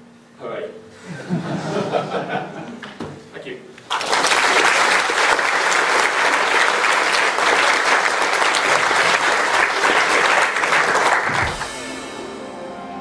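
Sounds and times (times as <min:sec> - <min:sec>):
audience applauding: 0:03.9 - 0:11.8.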